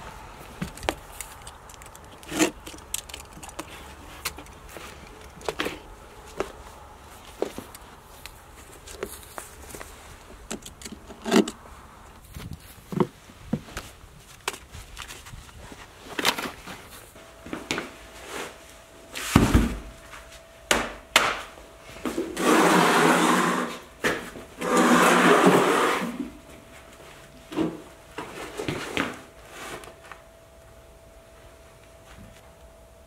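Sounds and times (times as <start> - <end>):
loud grating sounds: 22.4 - 23.8, 24.6 - 26.2.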